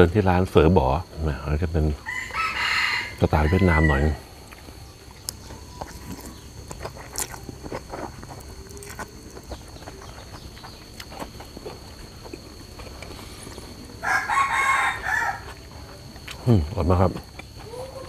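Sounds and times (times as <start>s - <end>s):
rooster crowing: 2.0s - 4.4s, 14.0s - 15.6s.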